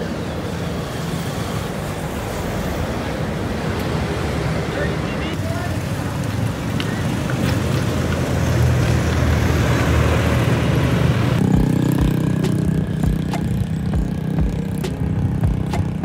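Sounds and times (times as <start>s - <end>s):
road and wind noise: 0.0s - 16.0s
vehicle engine running: 11.1s - 16.0s.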